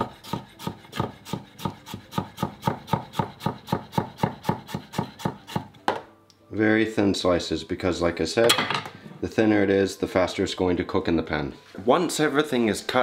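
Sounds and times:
knife slicing on plastic board: 0.0 - 5.8.

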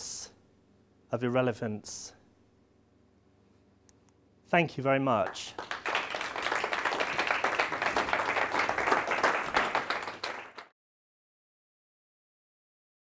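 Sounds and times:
audience applauding: 5.2 - 10.7.

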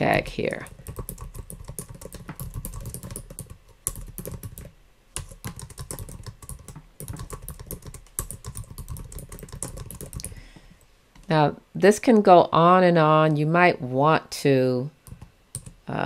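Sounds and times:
keyboard typing: 0.6 - 10.4, 15.0 - 15.8.

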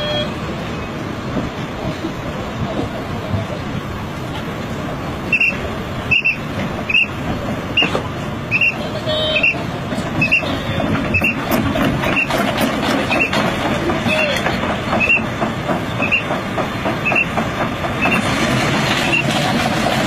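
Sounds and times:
short high travel alarm beeps: 0.0 - 0.6, 5.3 - 12.4, 13.1 - 13.4, 15.0 - 15.3, 16.0 - 16.3, 17.0 - 17.4, 19.1 - 19.3
mini excavator engines running: 0.0 - 20.0
steady rumble: 0.0 - 20.0.

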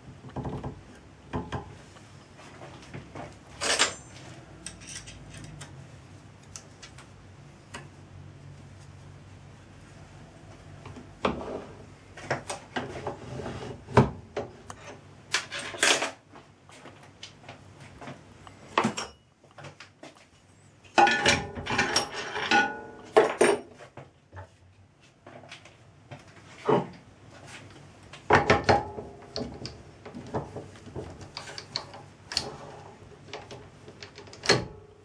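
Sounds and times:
metal tools clanking: 3.6 - 5.6.

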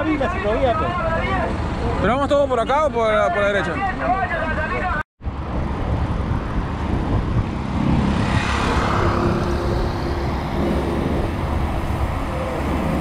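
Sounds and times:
road traffic noise: 0.0 - 13.0
wind rumble on microphone: 5.2 - 13.0.

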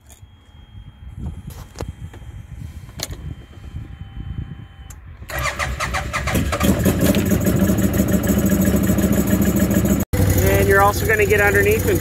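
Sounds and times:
engine starter cranking: 5.3 - 8.9
engine idling: 5.4 - 12.0.

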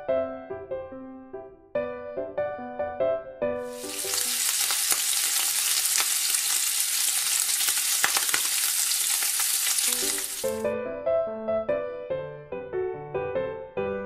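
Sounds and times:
piano music: 0.0 - 6.4, 9.7 - 14.0
food sizzling in a frying pan: 3.6 - 10.6.

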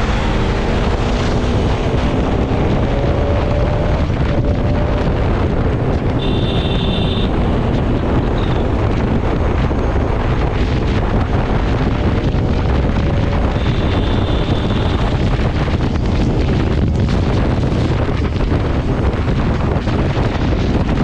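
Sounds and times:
motorcycle engine: 0.0 - 21.0
wind rushing over microphone: 0.0 - 21.0.

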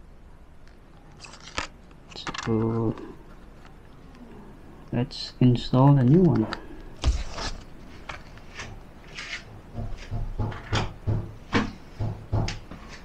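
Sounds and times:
paper rustle: 7.0 - 9.4.

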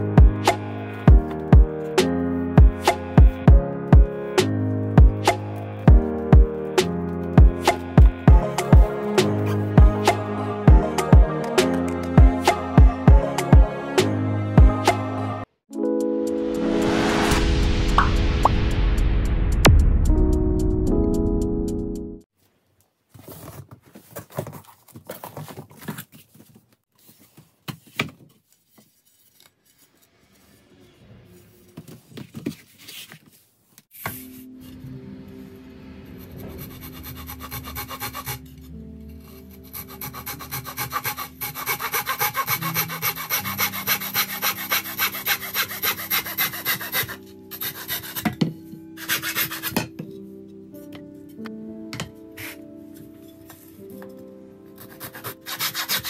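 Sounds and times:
handling knocks and rustles: 22.4 - 30.0, 31.7 - 34.3
handsaw cutting wood: 36.3 - 38.6, 39.2 - 48.4, 49.0 - 49.8, 54.8 - 56.0.

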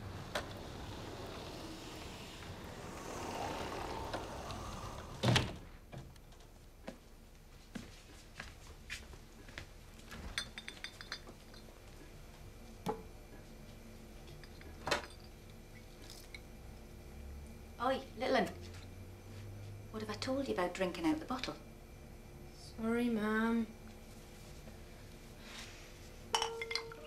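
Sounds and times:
rattle of clinks: 10.3 - 11.6, 26.4 - 27.0.

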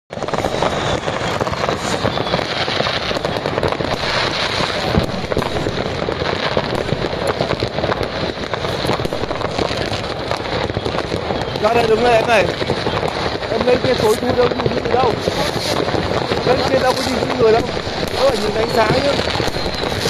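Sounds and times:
fireworks crackling and popping: 0.1 - 20.0.

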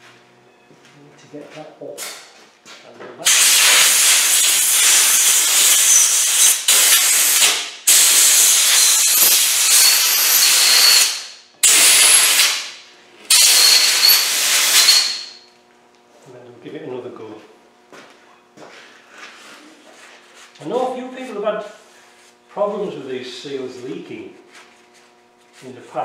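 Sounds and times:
pressurised jet hissing: 3.3 - 9.8, 13.3 - 15.2.

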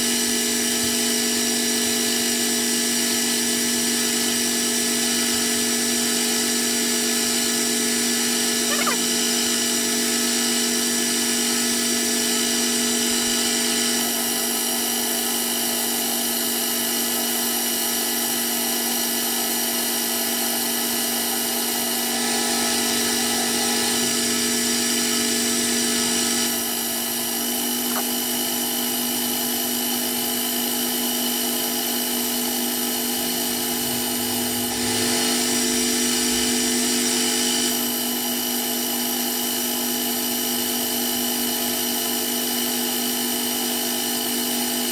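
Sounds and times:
metal lathe motor whine: 0.0 - 44.9
lathe cutting hiss: 19.0 - 44.9.

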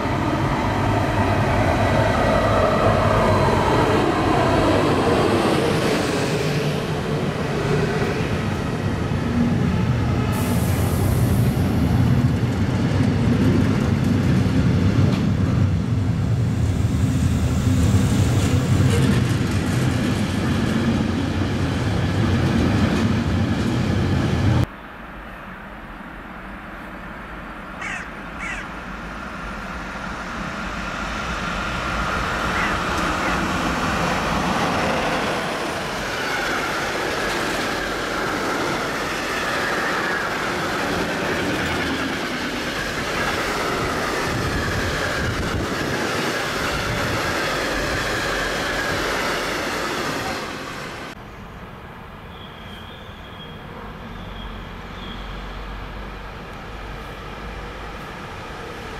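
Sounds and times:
freight train rumbling past: 0.0 - 58.9
bird calls: 27.8 - 28.7, 32.6 - 33.5.

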